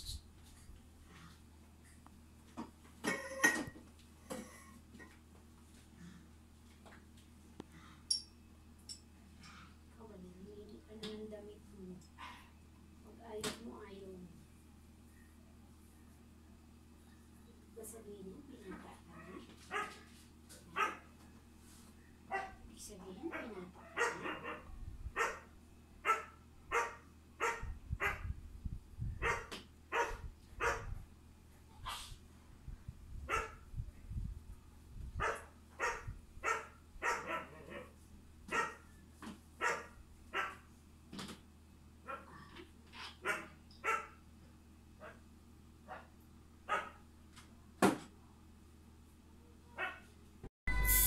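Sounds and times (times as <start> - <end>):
low steady hum: 0.0 - 51.0
dog barking: 19.7 - 20.0, 20.7 - 21.1, 22.3 - 22.6, 23.3 - 28.2, 29.2 - 30.9, 33.3 - 33.6, 35.2 - 37.9, 38.5 - 38.8, 39.6 - 40.6, 43.2 - 44.2, 45.9 - 46.1, 46.7 - 47.0, 49.8 - 50.1.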